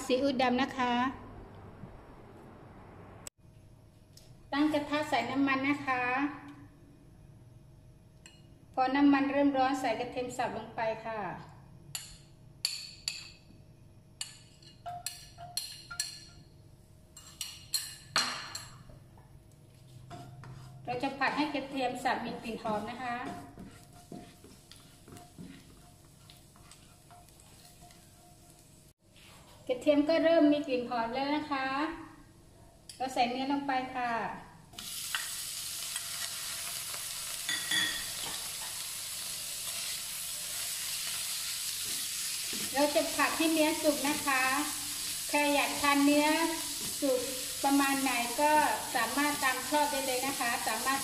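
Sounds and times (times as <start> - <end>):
metal spoon clinking on ceramic bowl: 14.2 - 16.5, 37.5 - 38.4
meat sizzling in a frying pan: 34.8 - 51.0.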